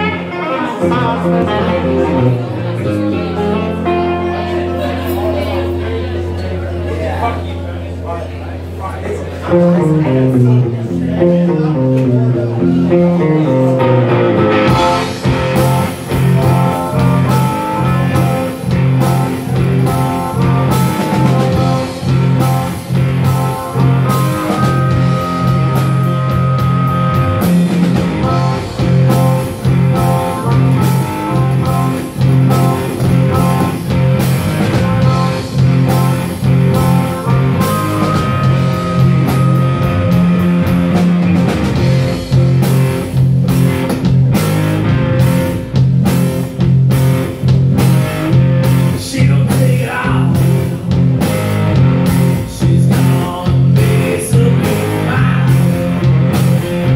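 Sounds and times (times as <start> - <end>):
bass guitar: 0.0 - 56.9
electric guitar: 0.0 - 56.9
drum kit steady beat: 14.3 - 56.9
harmonica held notes: 14.8 - 42.2.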